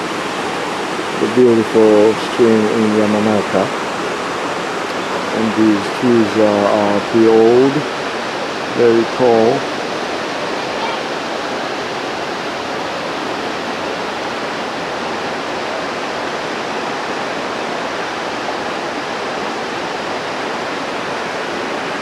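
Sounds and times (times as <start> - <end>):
river water rushing: 0.0 - 22.0.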